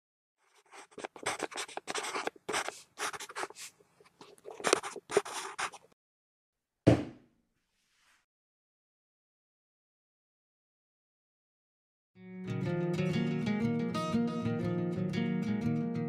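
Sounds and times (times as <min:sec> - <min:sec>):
felt-tip marker scratching on paper: 0:00.4 - 0:06.0
sharp thump: 0:06.9 - 0:07.2.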